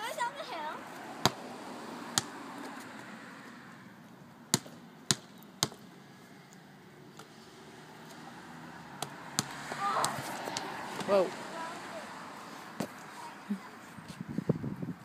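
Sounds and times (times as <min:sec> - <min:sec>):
basketball bouncing on concrete: 0:01.2 - 0:01.4, 0:02.1 - 0:02.3, 0:04.5 - 0:05.9, 0:09.0 - 0:11.2.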